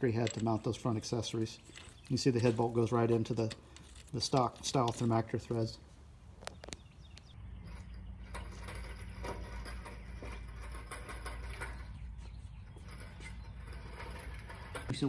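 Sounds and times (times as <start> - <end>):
engine hoist rolling on concrete: 7.3 - 15.0.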